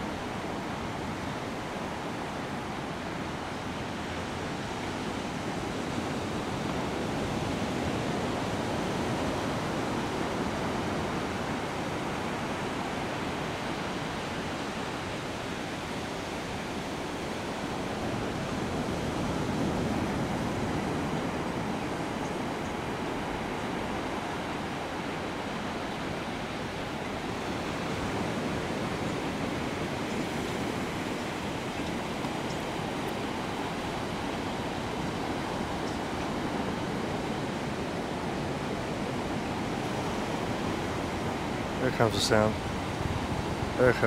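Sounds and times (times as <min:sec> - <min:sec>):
steady rushing noise: 0:40.5 - 0:44.0.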